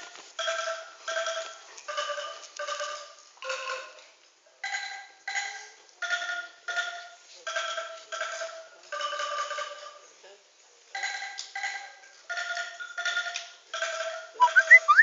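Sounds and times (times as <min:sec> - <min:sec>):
angklung melody: 0:12.4 - 0:15.0.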